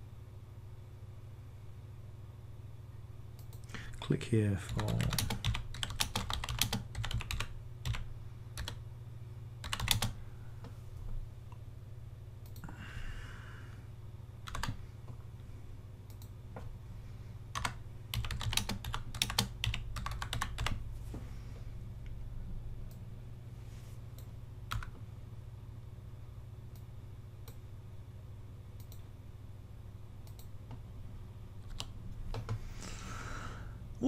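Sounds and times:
computer keyboard typing: 0:04.7 - 0:08.8, 0:09.6 - 0:10.2, 0:14.4 - 0:14.8, 0:17.5 - 0:20.8, 0:24.7 - 0:25.0, 0:31.6 - 0:32.6.

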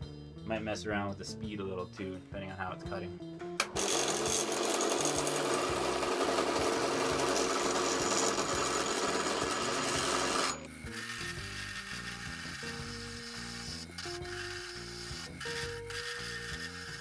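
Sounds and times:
gouge cutting wood on a lathe: 0:03.8 - 0:17.0.

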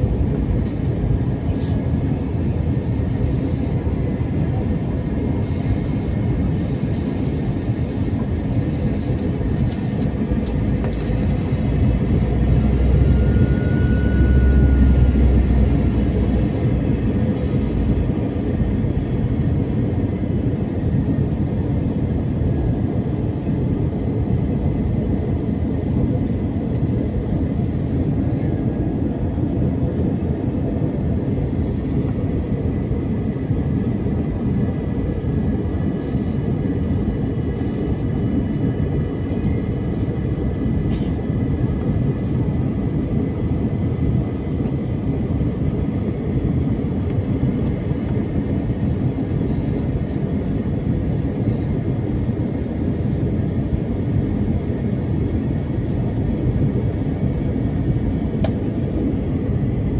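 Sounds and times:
jet engines rumbling: 0:00.0 - 0:59.9.

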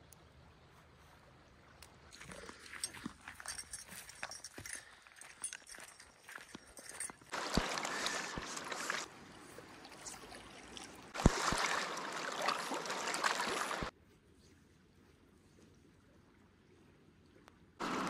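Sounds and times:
rushing river water: 0:06.3 - 0:13.9.

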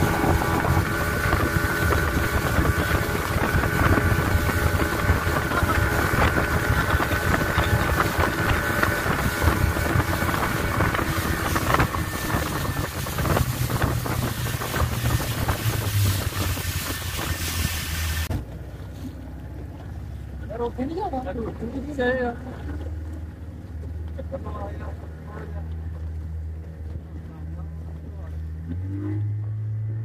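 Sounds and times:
wind buffeting microphone: 0:00.0 - 0:18.3
water rushing past: 0:00.0 - 0:19.1
outboard motor running: 0:00.0 - 0:30.0.

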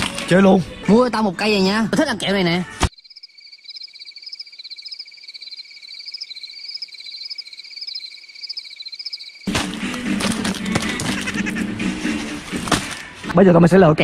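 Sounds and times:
crickets chirping: 0:02.9 - 0:09.5
frogs chirping: 0:02.9 - 0:09.5.

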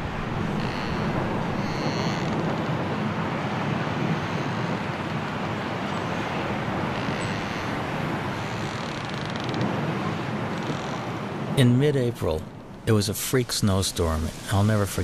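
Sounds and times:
strong wind blowing: 0:00.0 - 0:08.8.

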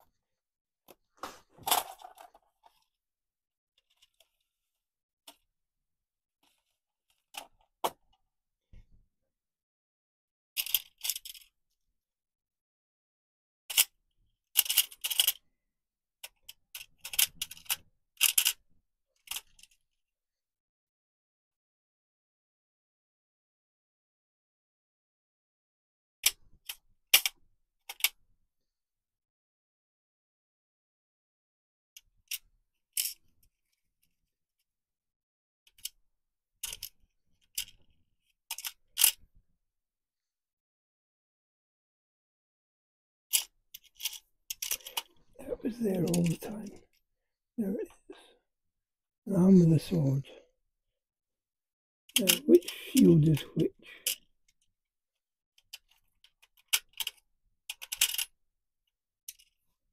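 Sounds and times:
small plastic parts clicking and rattling: 0:00.9 - 0:03.0, 0:03.8 - 0:05.6, 0:06.4 - 0:08.2, 0:10.6 - 0:11.6, 0:13.7 - 0:15.5, 0:16.2 - 0:20.0, 0:26.2 - 0:28.2, 0:32.0 - 0:34.7, 0:35.7 - 0:36.0, 0:36.6 - 0:39.4, 0:43.3 - 0:47.0, 0:52.1 - 0:54.7, 0:55.6 - 0:58.4, 0:59.3 - 0:59.8.

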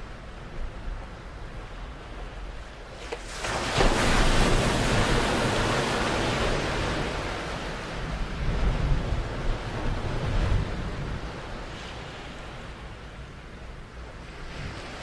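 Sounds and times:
ocean waves breaking: 0:00.0 - 0:15.0
low wind rumble: 0:03.7 - 0:15.0.

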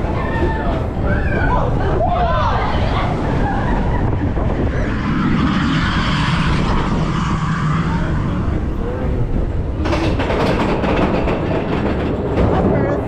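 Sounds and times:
roller coaster wheels rumbling: 0:00.0 - 0:13.0
rapid clattering: 0:09.3 - 0:13.0.

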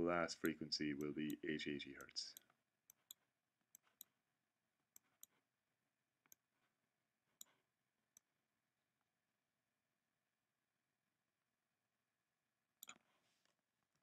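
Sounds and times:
computer mouse clicks: 0:02.0 - 0:03.2, 0:12.8 - 0:14.0.

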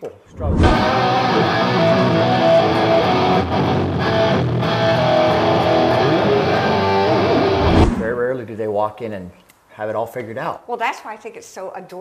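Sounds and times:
electric guitar through amplifier: 0:00.4 - 0:08.2.

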